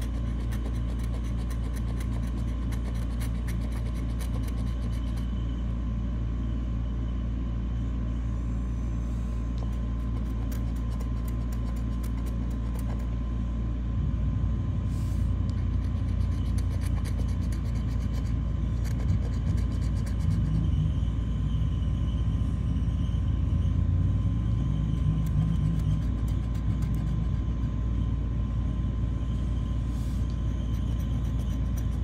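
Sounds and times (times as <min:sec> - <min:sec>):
scratching lottery ticket: 0:00.0 - 0:05.3, 0:09.6 - 0:13.1, 0:15.5 - 0:20.6, 0:30.5 - 0:32.0
low rumble: 0:04.2 - 0:32.0.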